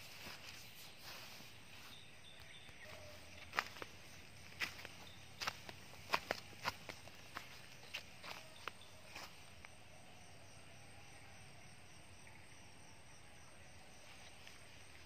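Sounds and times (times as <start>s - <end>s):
footsteps on dry leaves: 0.0s - 9.5s
crickets chirping: 0.0s - 15.0s.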